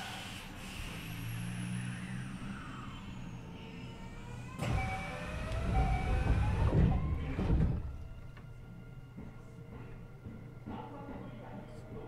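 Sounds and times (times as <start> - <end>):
train motors whining: 0.0 - 8.8
wheels rumbling on track: 0.5 - 8.8.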